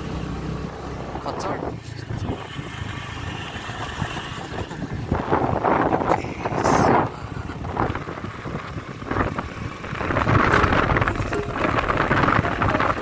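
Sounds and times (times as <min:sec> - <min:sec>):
vehicle engine and road noise: 0:00.0 - 0:13.0
wind on microphone: 0:01.6 - 0:13.0
rattling knocks: 0:10.4 - 0:13.0.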